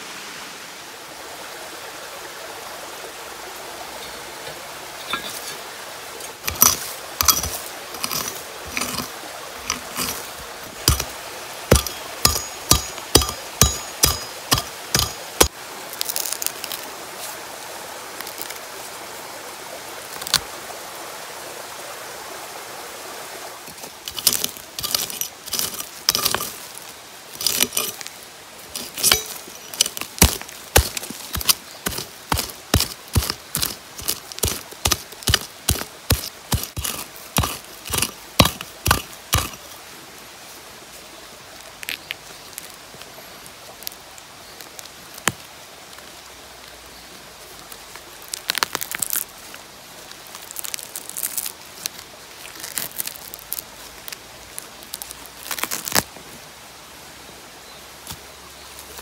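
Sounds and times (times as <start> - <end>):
loose soil spilling: 5.0 - 17.4, 23.6 - 39.8, 50.0 - 56.1
digging tool chopping into soil: 6.4 - 9.1, 9.7 - 15.5, 24.1 - 26.6, 27.4 - 28.1, 28.7 - 39.6.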